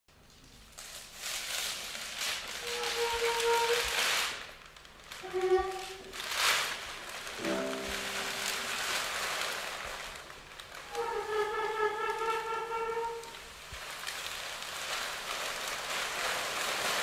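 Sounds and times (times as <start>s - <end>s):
paper rustling and crinkling: 0.2s - 17.0s
short cello notes: 7.4s - 9.3s.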